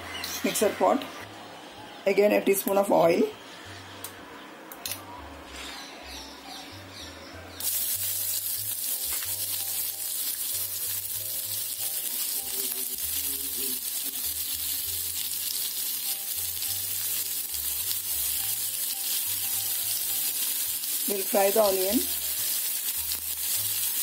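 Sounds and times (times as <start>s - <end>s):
onion sizzling in hot oil: 7.6s - 24.0s.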